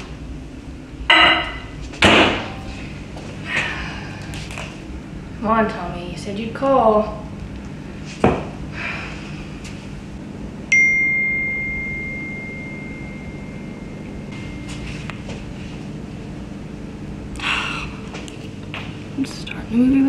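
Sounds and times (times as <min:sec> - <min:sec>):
high notification chime: 0:10.7 - 0:14.8.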